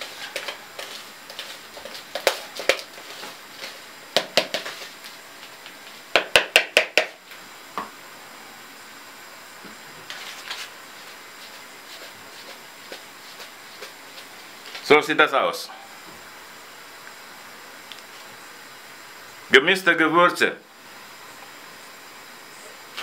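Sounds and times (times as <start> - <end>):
sharp knocks: 6.2 - 7.2.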